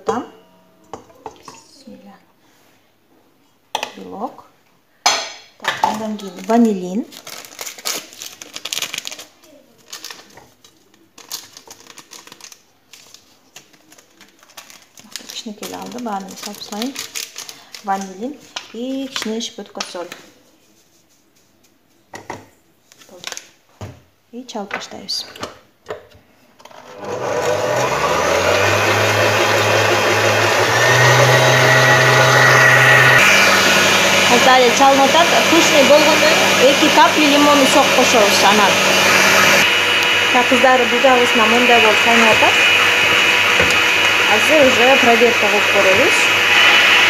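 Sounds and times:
paper sachet crinkling: 6.3s - 19.1s
stand mixer motor hum: 26.9s - 47.0s
whisk beating in steel bowl: 27.0s - 39.6s.

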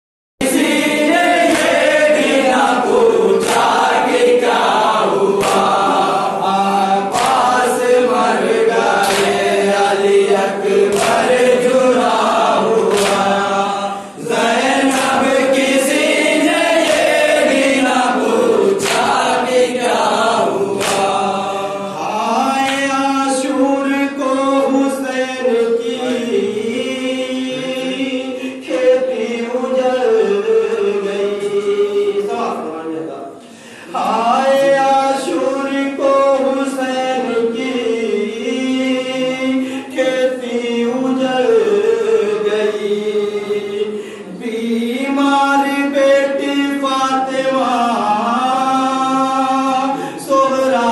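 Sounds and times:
rhythmic chest slaps: 0.4s - 26.2s, 43.4s - 50.9s
men chanting in unison: 0.4s - 50.9s
lead reciter on microphone: 0.5s - 50.9s.

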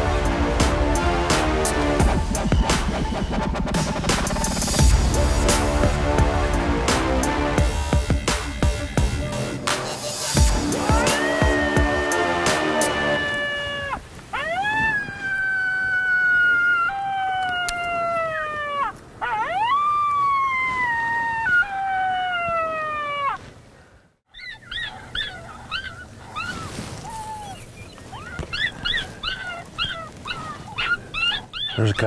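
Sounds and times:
coyote howling: 10.3s - 23.4s, 24.3s - 32.0s
coyote yipping: 12.9s - 23.4s, 24.3s - 32.0s.

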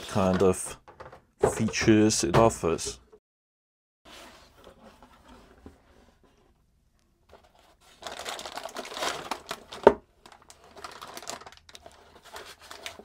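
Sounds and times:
plastic bag crinkling: 7.9s - 13.0s.

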